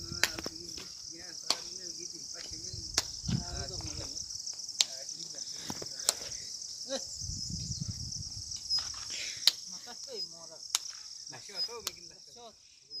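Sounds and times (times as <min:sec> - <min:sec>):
insects chirring: 0:00.0 - 0:13.0
sharp clicks: 0:10.7 - 0:11.0, 0:11.8 - 0:12.0.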